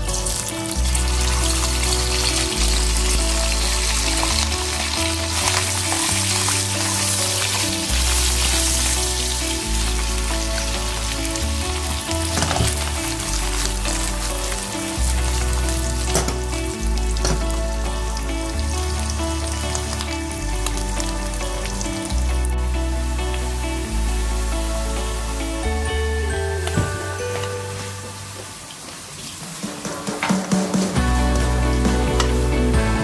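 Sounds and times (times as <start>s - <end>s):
meat sizzling in hot oil: 0.0s - 17.6s
background music with bass line: 0.0s - 28.4s, 29.9s - 33.0s.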